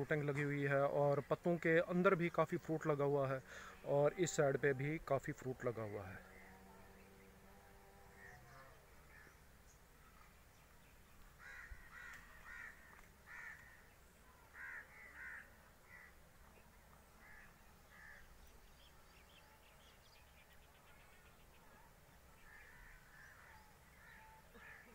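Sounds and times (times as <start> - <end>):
low background hiss: 0.0 - 24.9
faint bird calls: 5.8 - 24.9.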